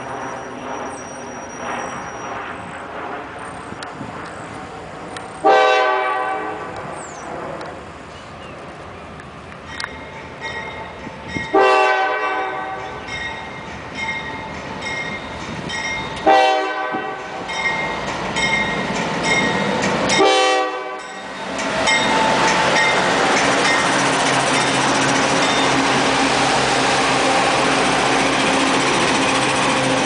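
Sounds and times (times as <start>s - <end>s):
locomotives rumbling past: 0.0s - 30.0s
locomotive air horn blasts: 5.4s - 6.7s, 11.5s - 12.8s, 16.2s - 17.4s, 20.2s - 21.1s.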